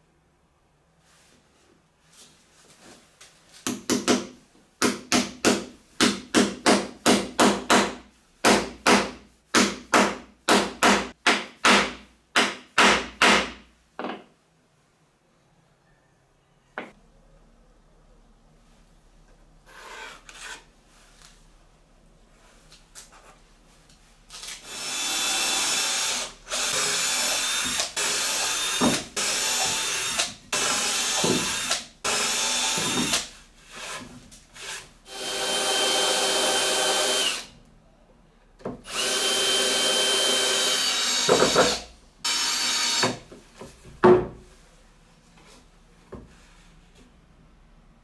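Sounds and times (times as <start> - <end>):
cordless drill drilling wood: 24.6 - 34.0, 34.6 - 37.5, 38.8 - 43.2.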